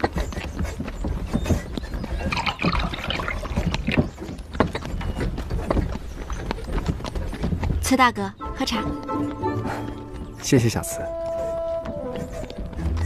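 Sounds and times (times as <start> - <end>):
carriage wheels rumbling: 0.0 - 8.0
hooves clip-clopping: 0.0 - 13.0.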